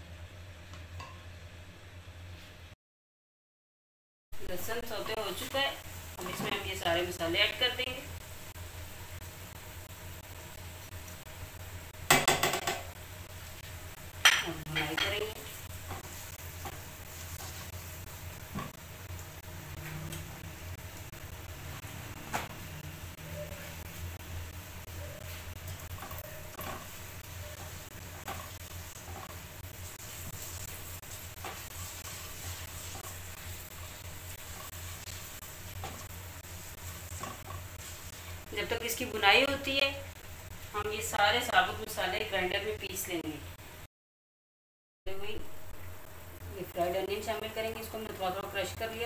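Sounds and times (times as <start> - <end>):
oil sizzling: 4.4 - 43.8, 45.2 - 49.0
spatula stirring in pan: 8.2 - 40.8.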